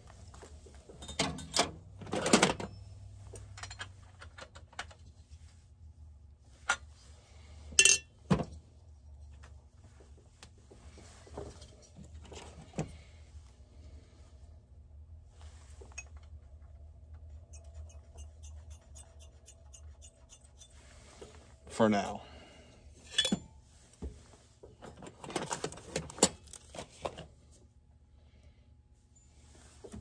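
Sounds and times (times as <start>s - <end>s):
metal parts clinking: 23.0s - 23.5s.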